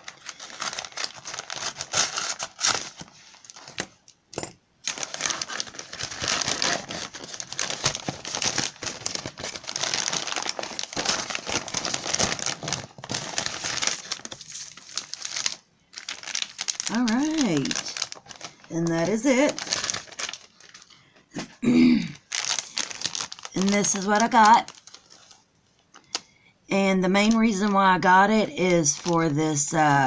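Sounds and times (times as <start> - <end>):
paper envelope tearing: 0.0 - 3.6, 4.9 - 20.8, 22.3 - 25.3
plastic packaging crinkling: 0.0 - 4.0, 4.8 - 26.3, 28.8 - 30.0.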